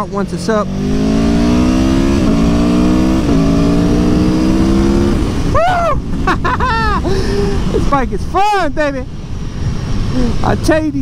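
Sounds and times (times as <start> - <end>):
motorcycle engine accelerating: 0.0 - 8.0
wind and road noise: 0.0 - 11.0.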